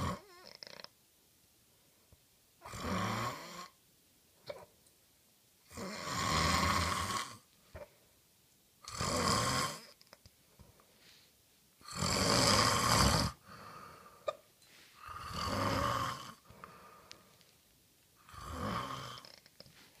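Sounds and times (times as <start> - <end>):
person snoring: 0.0 - 0.9, 2.6 - 3.8, 5.7 - 7.4, 8.8 - 10.0, 11.8 - 14.4, 15.0 - 17.1, 18.2 - 19.5.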